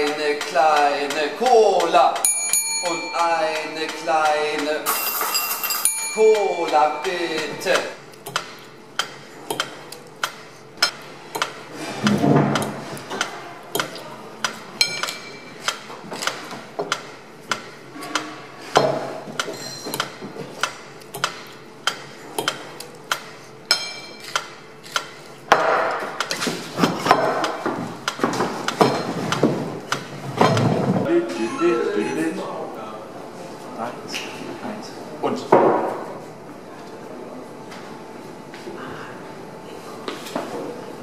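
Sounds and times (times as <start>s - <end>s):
glass and cutlery clinking: 2.2s - 7.6s.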